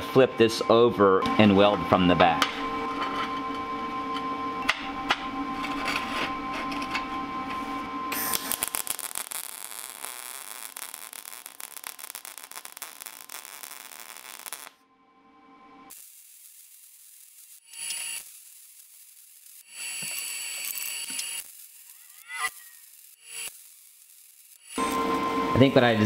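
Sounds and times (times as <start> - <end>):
welder arc crackling sizzle: 4.7 - 14.8, 15.9 - 26.0.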